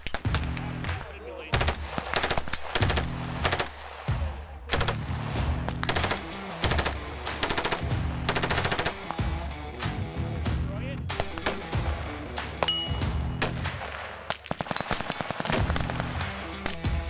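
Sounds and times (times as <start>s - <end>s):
background music: 0.0s - 17.0s
automatic gunfire bursts: 1.5s - 5.2s, 5.8s - 9.2s, 13.4s - 16.8s.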